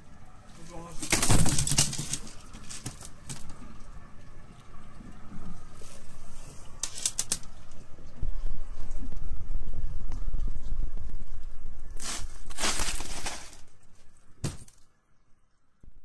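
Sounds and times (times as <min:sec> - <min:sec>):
rustling: 0:00.5 - 0:03.7, 0:11.9 - 0:14.8.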